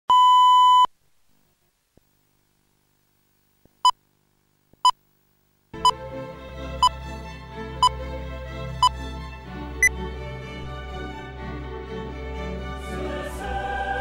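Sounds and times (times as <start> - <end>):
music: 5.8 - 14.0.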